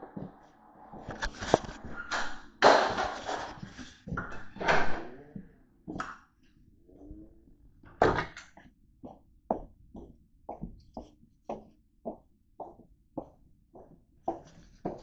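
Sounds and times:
footsteps on a hard floor: 0:00.0 - 0:01.9, 0:09.0 - 0:15.0.

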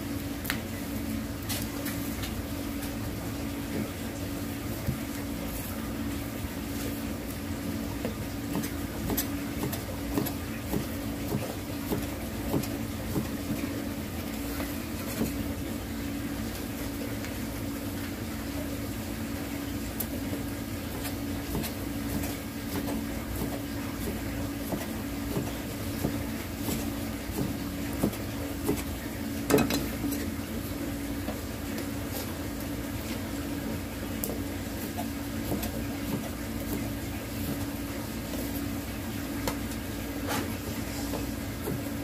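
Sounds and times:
steady machine hum: 0:00.0 - 0:42.0.

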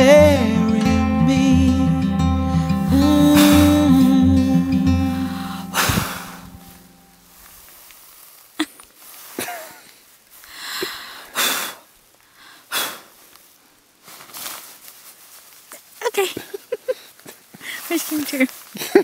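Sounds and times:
brief vocal sounds: 0:00.0 - 0:06.8
woman blowing puffs of breath: 0:02.5 - 0:03.9, 0:05.2 - 0:06.9, 0:10.5 - 0:13.1.

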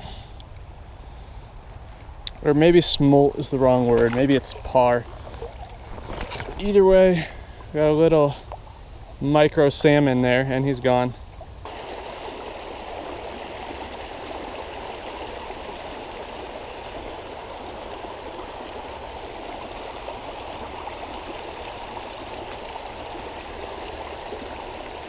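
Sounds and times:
stream water rushing over weir: 0:11.6 - 0:25.0.

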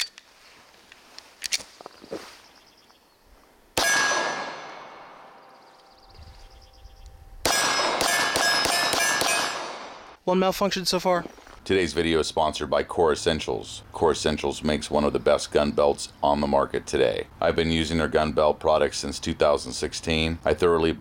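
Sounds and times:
pistol shots: 0:03.8 - 0:05.4, 0:07.4 - 0:10.2
steel target ringing: 0:03.8 - 0:10.0.

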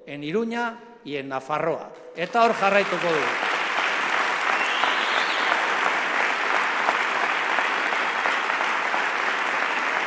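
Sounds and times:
crowd applauding: 0:02.2 - 0:10.0.

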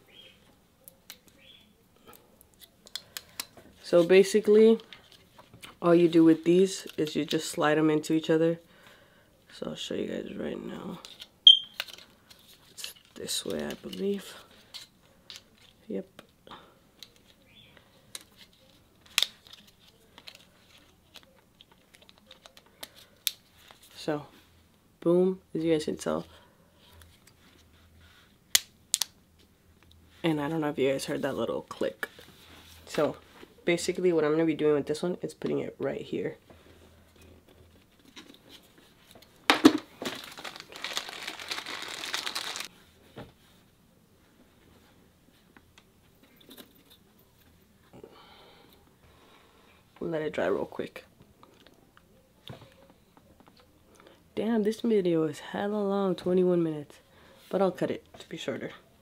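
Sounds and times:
plastic packaging crinkling: 0:39.5 - 0:42.7
plastic wrapper ripping: 0:40.0 - 0:42.7.

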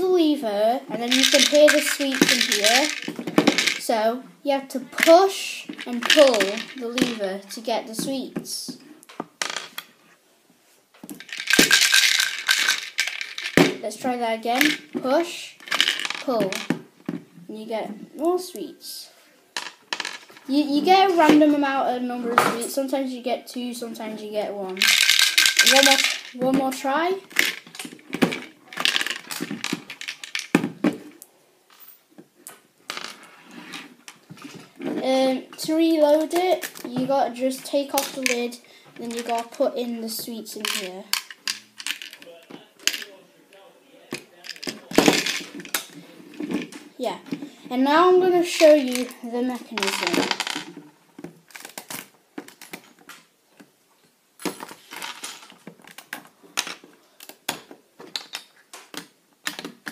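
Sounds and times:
candies clattering on wooden table: 0:01.0 - 0:03.9, 0:05.0 - 0:07.3, 0:09.1 - 0:09.9, 0:11.0 - 0:17.2, 0:19.6 - 0:20.5, 0:24.7 - 0:31.0, 0:32.9 - 0:35.0, 0:37.8 - 0:43.1, 0:44.1 - 0:53.3, 0:54.4 - 0:59.9
plastic clicks and rattles: 0:11.1 - 0:13.7, 0:24.8 - 0:26.3, 0:40.6 - 0:43.1, 0:54.4 - 0:59.9.

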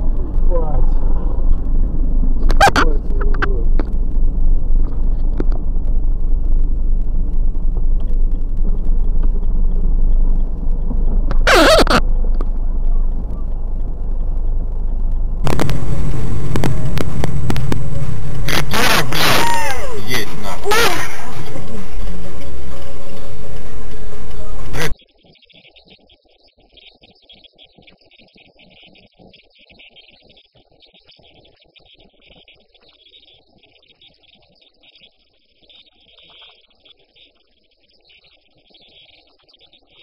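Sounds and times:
car engine and tyre rumble: 0:00.0 - 0:24.9
loud steady drone: 0:00.0 - 0:25.0.

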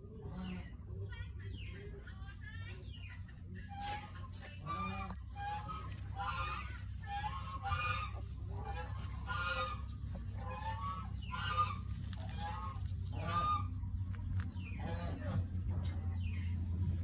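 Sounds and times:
steady low hum: 0:00.0 - 0:17.0
puppies squealing and whimpering: 0:03.8 - 0:13.8.

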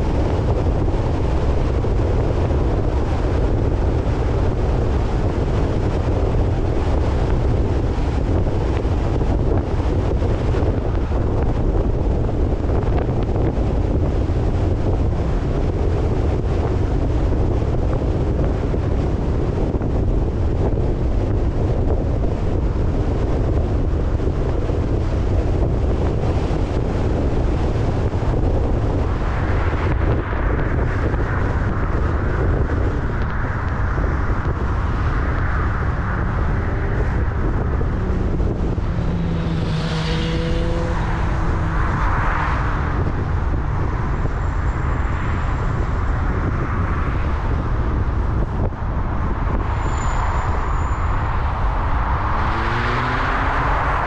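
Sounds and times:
car engine and tyre rumble: 0:00.0 - 0:54.0
vehicles passing by: 0:00.0 - 0:54.0.

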